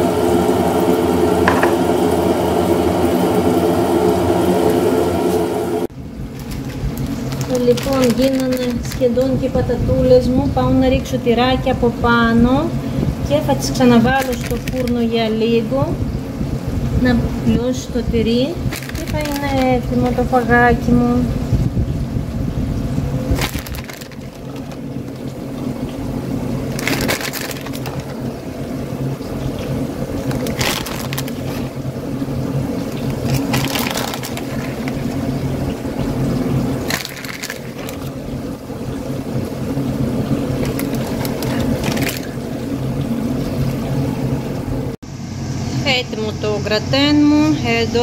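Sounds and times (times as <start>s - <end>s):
steady low hum: 0.0s - 48.0s
plastic bag crinkling: 6.3s - 9.6s, 13.9s - 15.2s, 18.6s - 20.2s, 23.2s - 28.7s, 30.1s - 42.9s.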